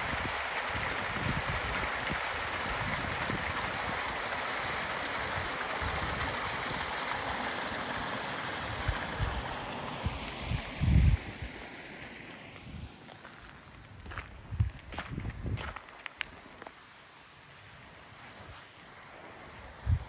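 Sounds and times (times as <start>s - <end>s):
running water rushing: 0.0s - 14.3s.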